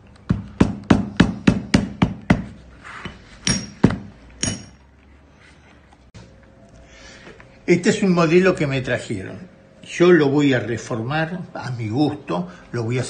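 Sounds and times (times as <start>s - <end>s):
hammer tapping on leather: 0.2s - 2.6s.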